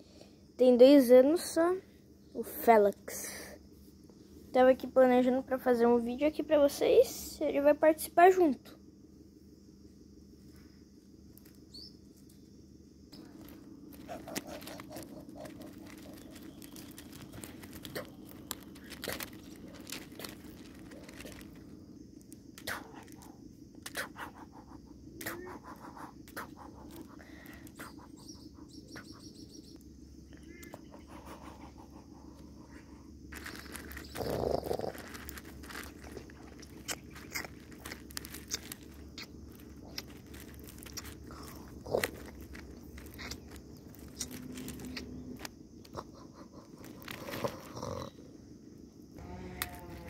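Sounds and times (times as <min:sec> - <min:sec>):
steady low hum: 0:00.0 - 0:50.0
gravel stones clicking and scraping: 0:13.1 - 0:23.4, 0:33.3 - 0:48.1, 0:49.1 - 0:50.0.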